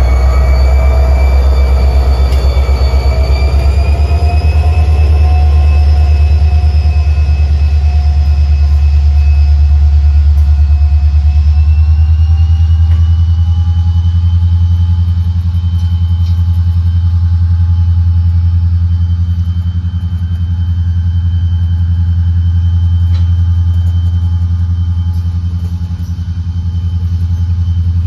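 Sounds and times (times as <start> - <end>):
train cars rumbling past: 0.0 - 15.6.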